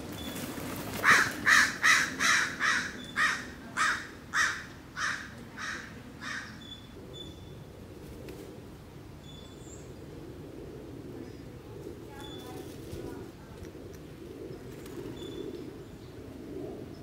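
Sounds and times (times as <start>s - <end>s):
crow cawing harshly: 1.0s - 6.5s.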